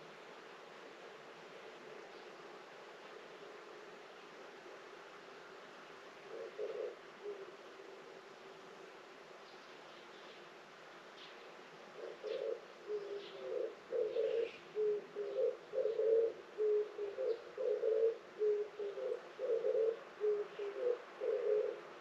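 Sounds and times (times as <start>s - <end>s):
dove cooing: 6.2s - 8.2s, 12.0s - 22.0s.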